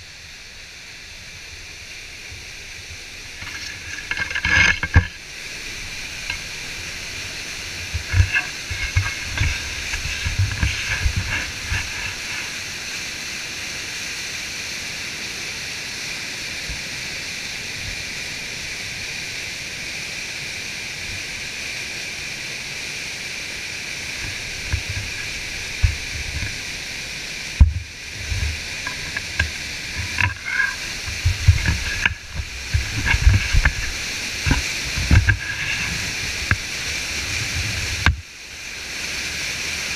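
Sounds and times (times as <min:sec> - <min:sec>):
water rushing over rocks: 0:00.1 - 0:39.9
low thumps against camera: 0:07.8 - 0:12.4, 0:27.6 - 0:36.6.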